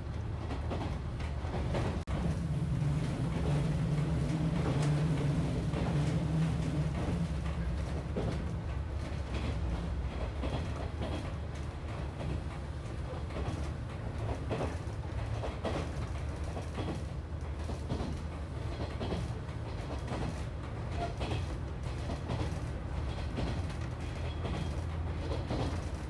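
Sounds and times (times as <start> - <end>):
train wheels rumbling on rail: 0.0 - 26.0
clicks and creaks of carriage: 10.4 - 26.0.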